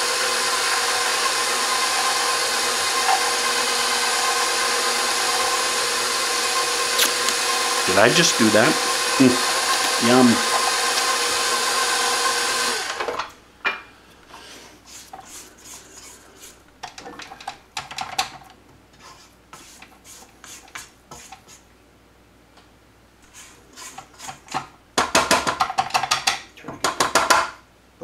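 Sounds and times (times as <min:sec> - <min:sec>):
stand mixer motor: 0:00.0 - 0:13.1
spatula scraping metal bowl: 0:23.3 - 0:24.6.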